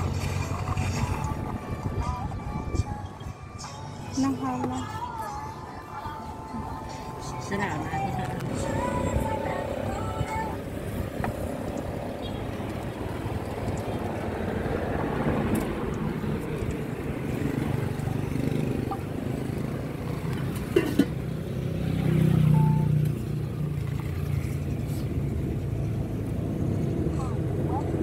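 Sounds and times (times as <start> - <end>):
road traffic engine hum: 0.0 - 28.0.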